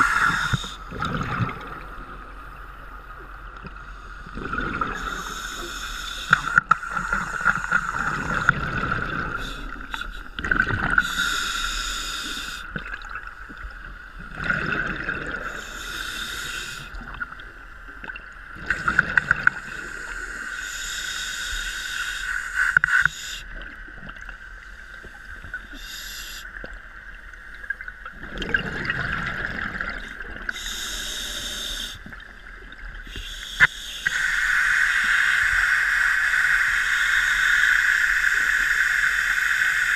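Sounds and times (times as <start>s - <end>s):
scuba regulator breathing underwater: 0.0s - 1.8s, 3.8s - 12.7s, 14.5s - 17.1s, 18.6s - 23.5s, 25.6s - 26.6s, 28.7s - 32.1s, 33.0s - 39.9s.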